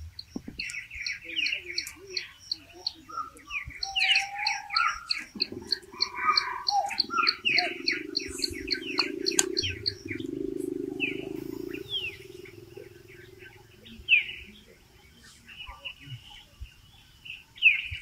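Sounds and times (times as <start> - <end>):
birds chirping: 0.0 - 18.0
steady low buzz: 6.9 - 15.5.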